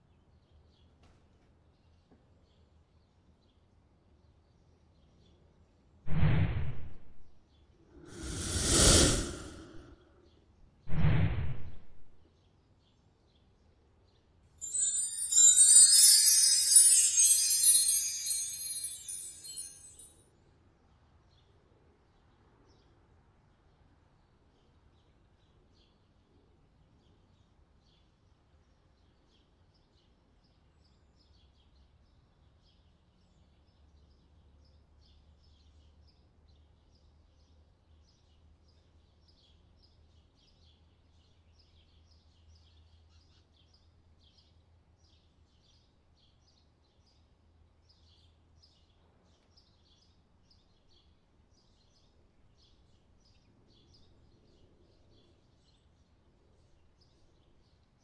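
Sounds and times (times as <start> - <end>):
small birds chirping: 14.6 - 20.1, 30.9 - 58.0.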